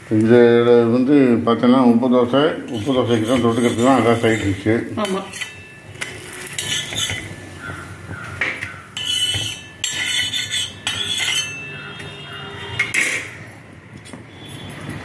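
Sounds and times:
spatula scraping metal griddle: 0:02.6 - 0:13.4.

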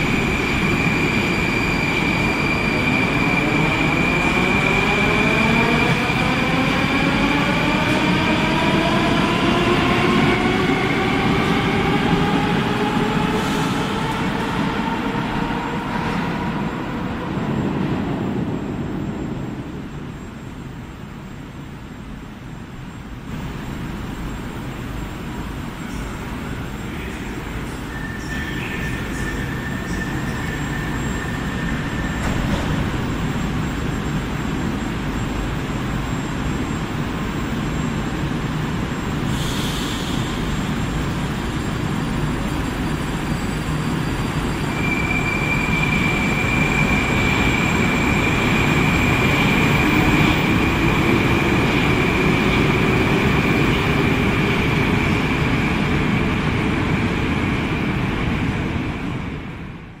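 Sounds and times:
rising whine of accelerating train: 0:00.0 - 1:00.0
train rumbling: 0:00.0 - 1:00.0
train doors closing: 0:07.6 - 0:18.1, 0:25.9 - 0:34.2.

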